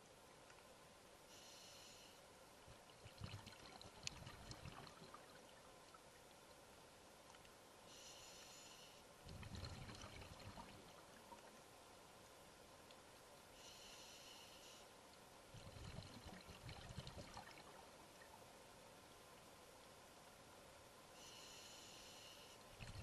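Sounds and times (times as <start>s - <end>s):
diver inhaling underwater: 1.3s - 2.2s, 7.9s - 9.0s, 13.6s - 14.9s, 21.2s - 23.0s
exhaled bubbles crackling: 2.7s - 5.6s, 9.3s - 11.5s, 15.6s - 18.0s, 22.8s - 23.0s.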